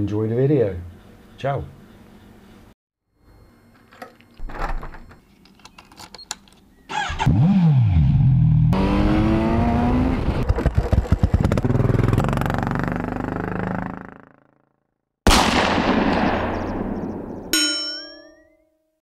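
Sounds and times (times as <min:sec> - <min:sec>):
motorcycle engine starting and revving: 0:06.9 - 0:14.7.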